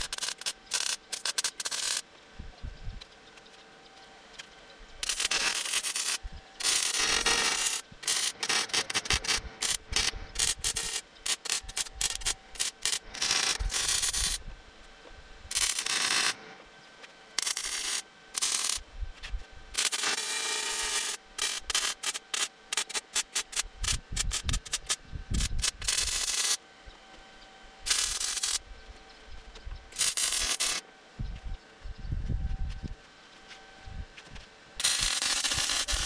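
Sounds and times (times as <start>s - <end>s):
welder arc crackling: 0.0s - 2.1s, 5.0s - 14.5s, 15.5s - 16.5s, 17.4s - 26.6s, 27.8s - 28.7s, 29.9s - 30.8s, 34.8s - 36.0s.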